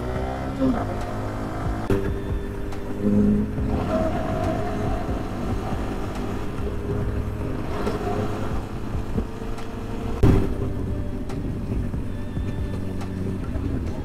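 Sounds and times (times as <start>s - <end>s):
motorcycle engine running: 0.0s - 14.0s
loud thump: 10.2s - 10.7s.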